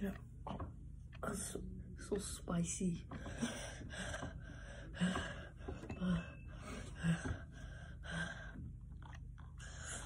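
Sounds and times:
boy gasping and breathing hard: 3.1s - 8.7s.

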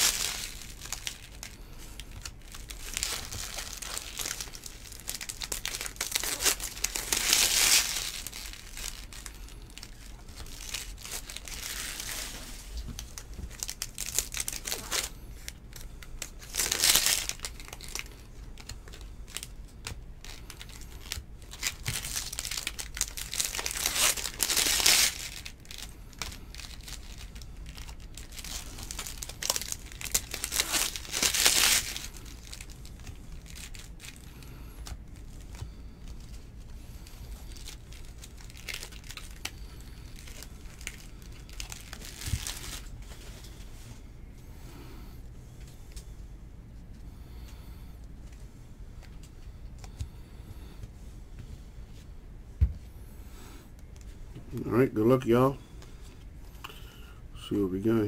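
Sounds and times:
card pack wrappers tearing and crinkling: 0.0s - 43.2s.

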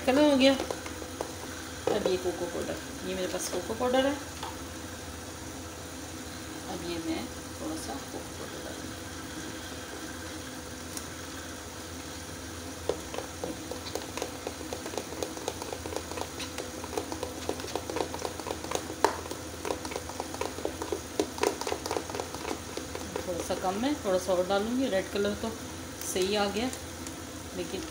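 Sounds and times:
faint steady hum: 0.0s - 27.9s.

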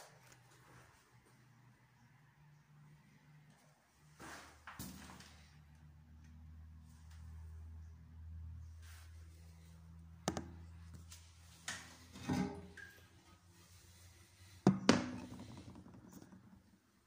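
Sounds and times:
ceramic toilet lid clunking: 12.2s - 12.8s.

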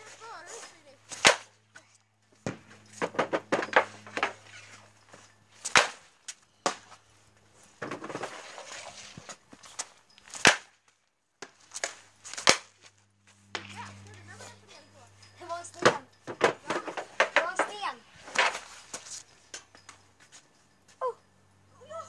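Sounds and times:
hockey stick striking puck: 1.1s - 1.5s, 2.5s - 4.6s, 5.7s - 7.0s, 10.3s - 10.7s, 15.8s - 18.7s
puck hitting goalie or net: 1.1s - 1.5s, 2.4s - 4.5s, 5.6s - 7.0s, 10.3s - 10.8s, 11.8s - 12.8s, 15.8s - 18.7s.

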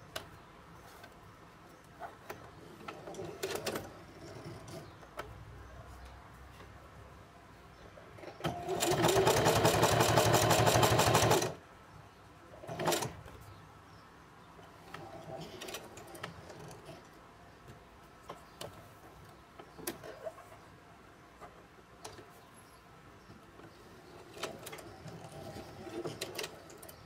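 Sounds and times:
sewing machine stitching leather: 8.4s - 11.6s, 12.6s - 13.2s, 24.2s - 27.0s.

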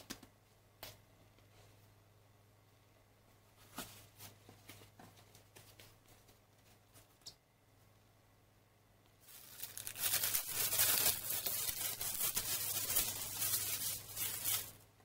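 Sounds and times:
plastic bag crinkling: 9.2s - 14.8s.

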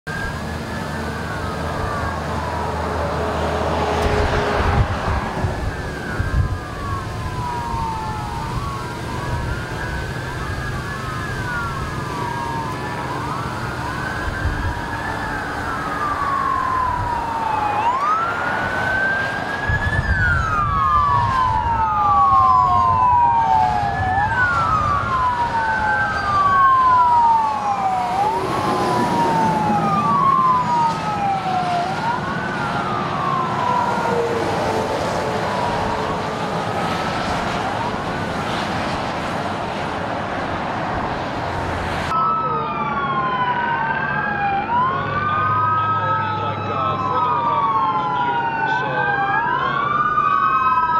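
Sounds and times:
police sirens wailing: 0.0s - 50.9s
vehicles rumbling on a freeway: 0.0s - 50.9s.

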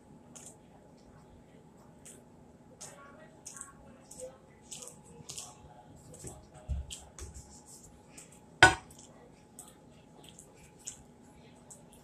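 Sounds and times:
chewing: 2.8s - 12.0s.

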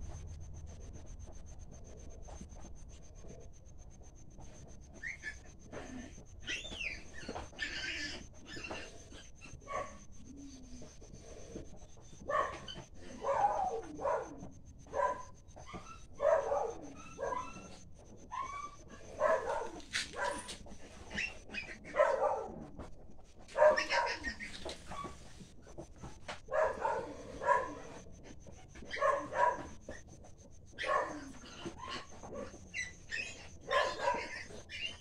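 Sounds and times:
piglets squealing and grunting: 5.0s - 10.6s, 16.8s - 22.0s, 23.6s - 25.2s, 30.8s - 35.0s.

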